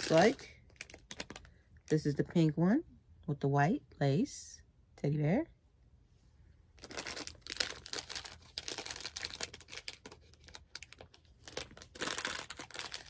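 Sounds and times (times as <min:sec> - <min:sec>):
plastic bag crinkling: 0:00.0 - 0:02.2, 0:06.8 - 0:13.0.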